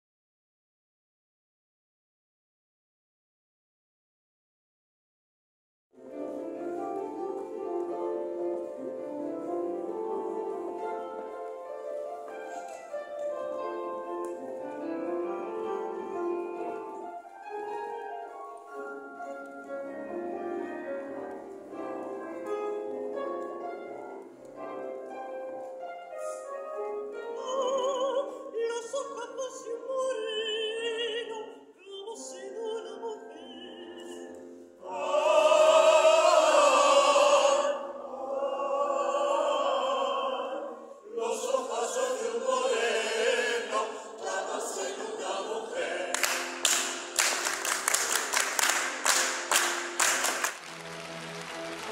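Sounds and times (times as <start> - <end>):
instrumental accompaniment: 6.0 - 28.5, 41.2 - 51.9
soprano singing with vibrato: 27.0 - 46.3
chorus singing: 34.8 - 50.4.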